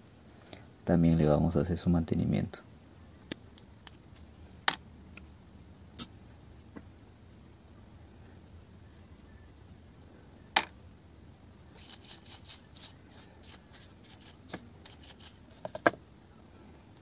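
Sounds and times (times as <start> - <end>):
bristle brush scrubbing metal: 11.7 - 15.8.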